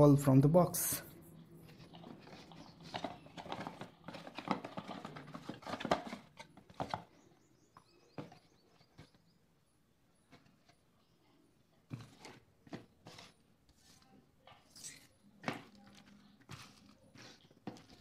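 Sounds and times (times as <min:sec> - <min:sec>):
packaging rustling and clicking: 0:01.6 - 0:07.2.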